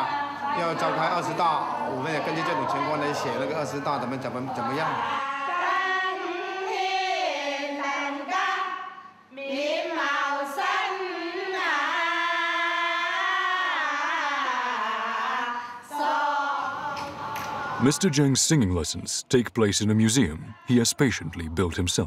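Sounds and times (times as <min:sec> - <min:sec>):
women singing folk song: 0:04.6 - 0:17.8.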